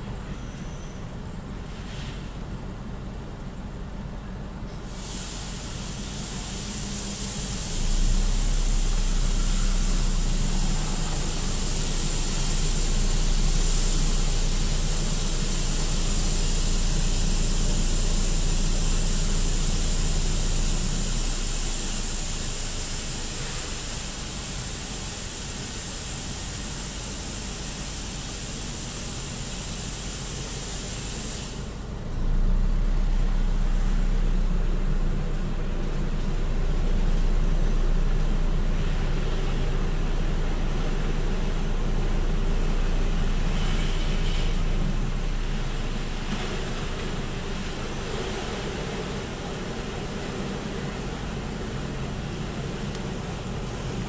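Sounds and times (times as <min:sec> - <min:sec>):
deep machine rumble: 0:00.0 - 0:54.0
low machine hum: 0:00.0 - 0:54.0
water spraying hiss: 0:04.9 - 0:31.8.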